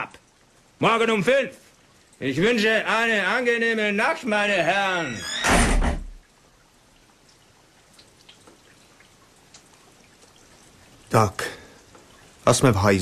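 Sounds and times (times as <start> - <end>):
faint hiss: 0.0 - 13.0
door slamming: 5.0 - 6.2
soft ticks: 7.0 - 11.0, 11.8 - 12.3.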